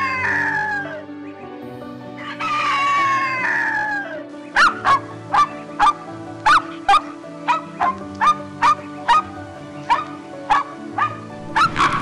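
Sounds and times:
background music: 0.0s - 12.0s
puppy yapping: 4.6s - 9.2s, 9.9s - 12.0s.

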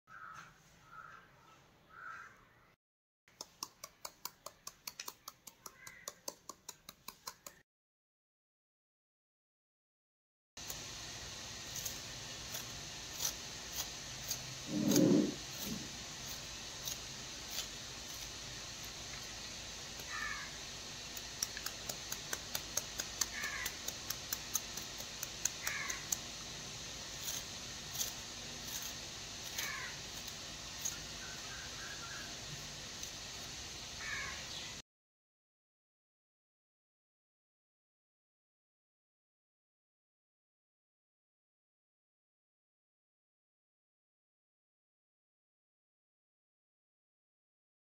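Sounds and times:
crows cawing: 0.1s - 2.6s, 5.7s - 6.2s, 20.1s - 20.6s, 23.4s - 23.8s, 25.6s - 26.1s, 29.6s - 30.0s, 34.0s - 34.4s
steady hiss: 10.6s - 34.8s
knife chopping on cutting board: 13.2s - 15.9s.

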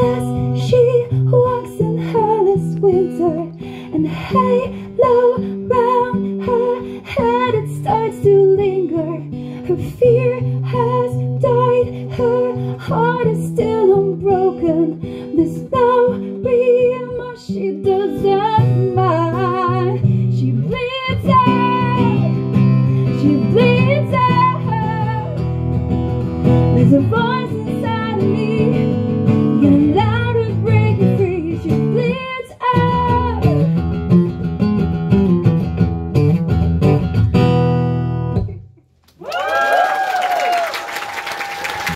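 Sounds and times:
woman singing with vibrato: 0.0s - 22.4s, 23.1s - 25.4s, 26.7s - 33.6s
strummed acoustic guitar: 0.0s - 38.6s
applause: 39.1s - 41.9s.

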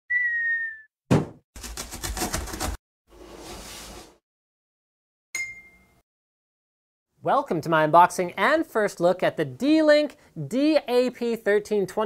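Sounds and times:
falling whistle: 0.1s - 0.9s
sharp thud: 1.1s - 1.4s
bright ding: 5.4s - 6.0s.

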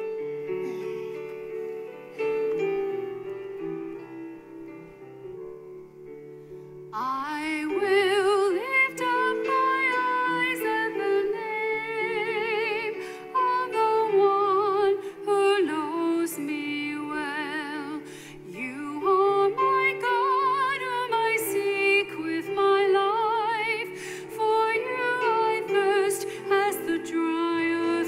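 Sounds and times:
keyboard playing held chords: 0.0s - 22.4s
person singing a hymn: 7.0s - 28.0s.

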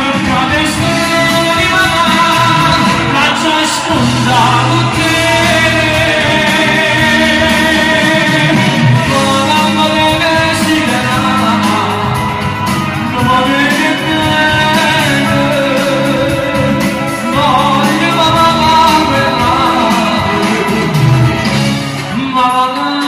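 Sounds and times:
backing music: 0.0s - 23.0s
man singing into microphone: 0.0s - 23.0s.

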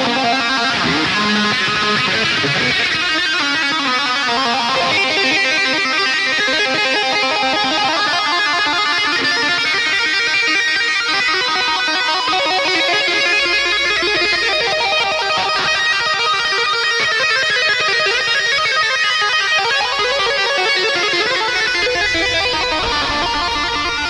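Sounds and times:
plucked electric guitar music: 0.0s - 24.0s.

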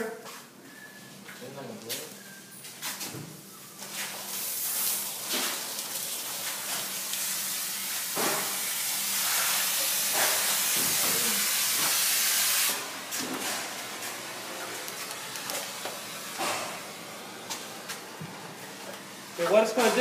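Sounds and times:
smoke grenade hissing: 6.6s - 12.9s.

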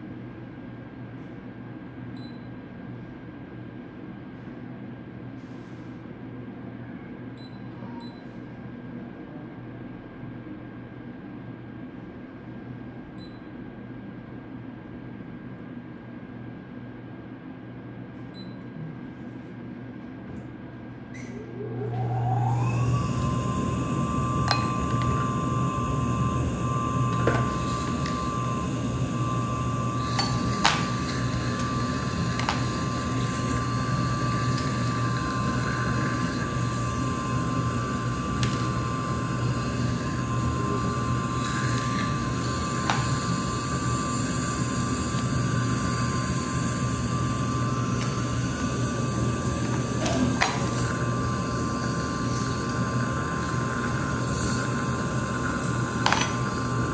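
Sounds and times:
dental suction motor whining: 21.2s - 56.9s.

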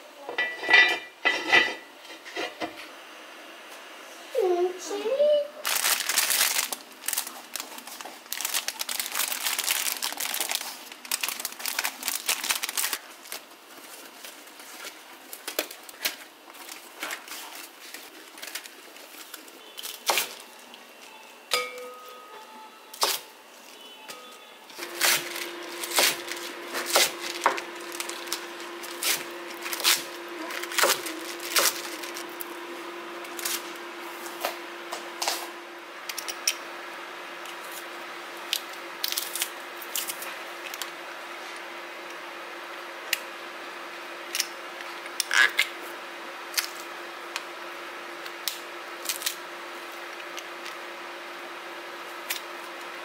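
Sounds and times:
steady low hum: 20.5s - 45.1s.

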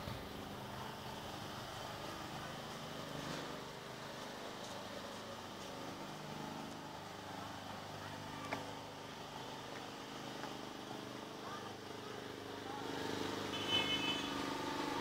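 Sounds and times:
engine humming: 0.0s - 15.0s
faint voices: 4.4s - 15.0s.

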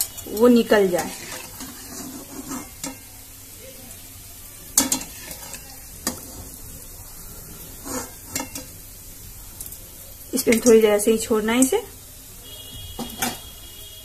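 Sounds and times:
ghee sizzling in a pan: 0.0s - 14.0s
metal spoon clicking on pan: 2.8s - 3.1s, 4.8s - 6.2s.

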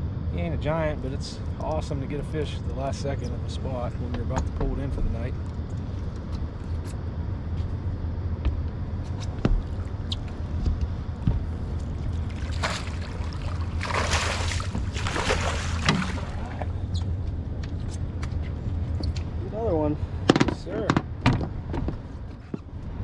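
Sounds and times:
steady low hum: 0.0s - 23.0s
fish splashing in water: 12.2s - 16.7s.

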